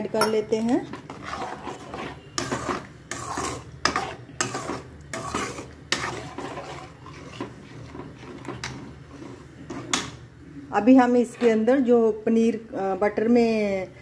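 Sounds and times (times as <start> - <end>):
metal spoon scraping a pan: 0.0 - 10.0.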